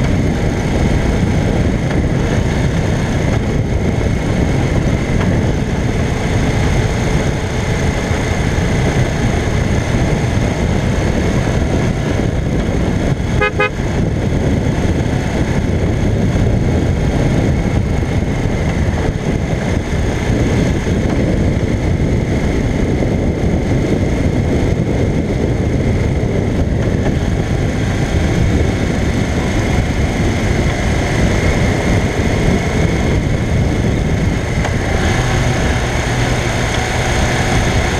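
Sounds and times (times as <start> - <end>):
motorcycle engine cruising: 0.0 - 37.9
wind and road rush: 0.0 - 37.9
horn toot: 13.4 - 13.8.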